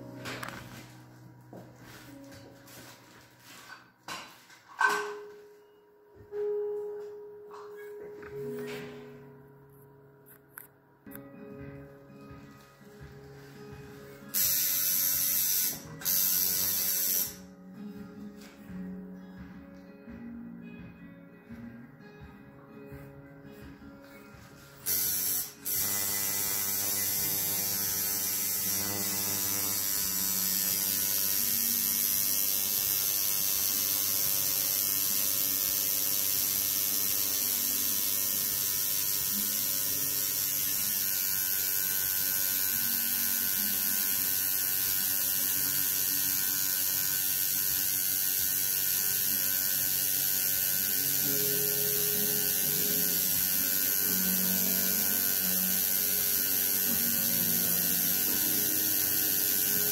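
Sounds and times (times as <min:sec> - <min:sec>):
tattoo machine buzzing: 0:14.3 - 0:17.5, 0:24.8 - 0:59.9.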